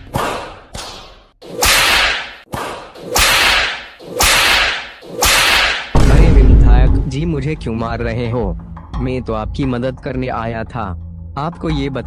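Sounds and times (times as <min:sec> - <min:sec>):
cartoon whip swishes: 0:00.0 - 0:05.9.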